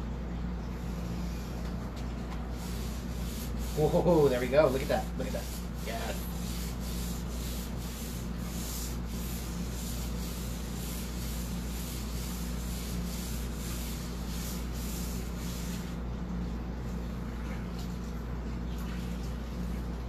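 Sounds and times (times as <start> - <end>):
steady low hum: 0.0 - 20.0
cloth rubbing on wood: 0.9 - 16.0.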